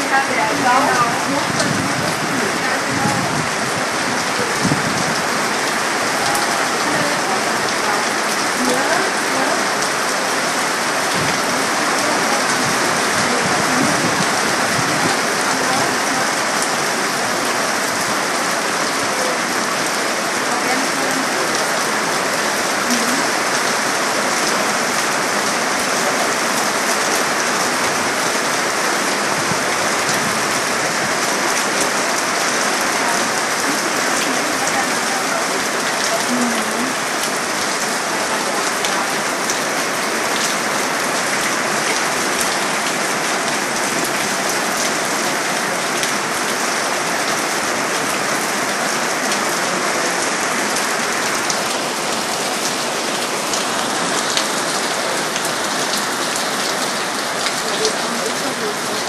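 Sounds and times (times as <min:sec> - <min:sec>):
heavy rain: 0:00.0 - 0:59.0.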